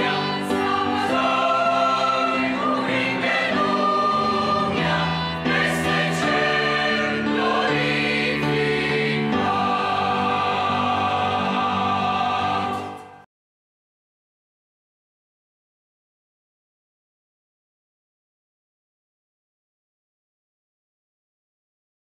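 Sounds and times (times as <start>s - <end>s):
mixed choir singing a hymn: 0.0s - 13.3s.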